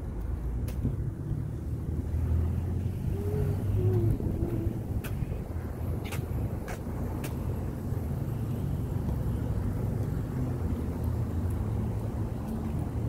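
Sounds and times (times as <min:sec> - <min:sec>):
car driving rumble: 0:00.0 - 0:13.0.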